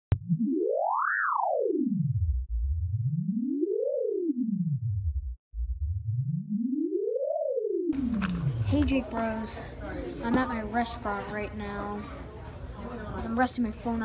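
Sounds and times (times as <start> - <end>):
synthesized tone sweeping in pitch: 0.2 - 9.2.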